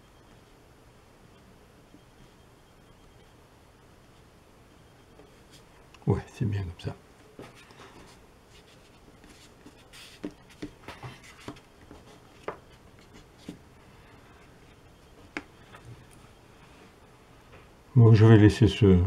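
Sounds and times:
marker scratching on paper: 0:08.0 - 0:12.2.

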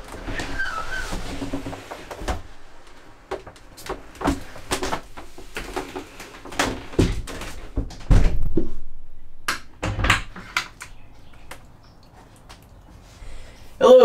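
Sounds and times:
wooden door knocks and clunks: 0:06.5 - 0:08.8, 0:09.8 - 0:10.4.

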